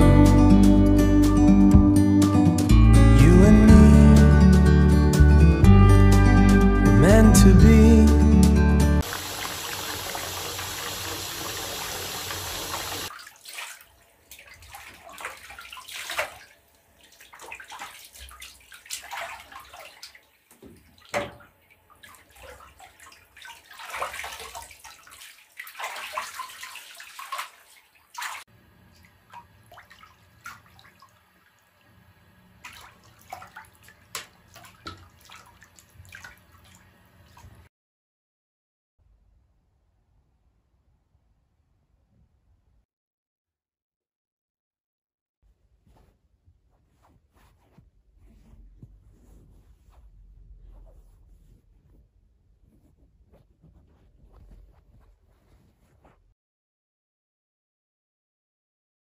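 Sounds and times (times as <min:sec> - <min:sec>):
bath tap pouring water: 0:09.0 - 0:13.4
bathwater splashing: 0:09.0 - 0:31.9, 0:32.6 - 0:37.7.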